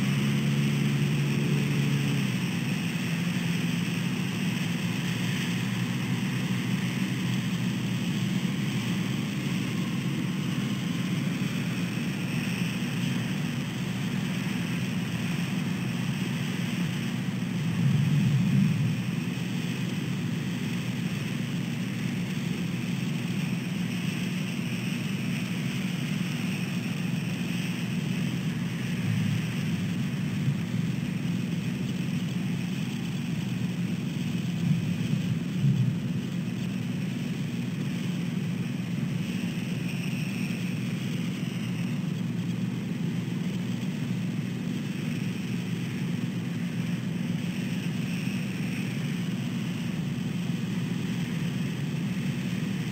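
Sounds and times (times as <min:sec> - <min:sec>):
faint hiss: 0:00.2 - 0:52.9
low rumble: 0:17.2 - 0:20.6, 0:28.8 - 0:31.3, 0:34.6 - 0:36.3.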